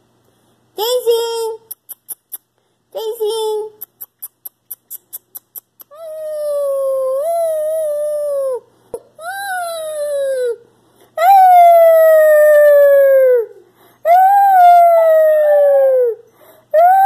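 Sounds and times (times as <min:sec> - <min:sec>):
puppy howling: 0:11.2 - 0:16.2, 0:16.8 - 0:17.0.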